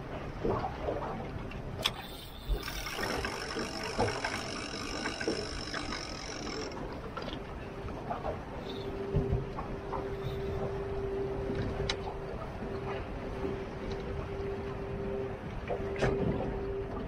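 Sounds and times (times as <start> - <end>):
water: 0.0 - 17.0
wind: 0.0 - 17.0
steady whine: 1.8 - 7.6
small boat motor running: 1.8 - 17.0.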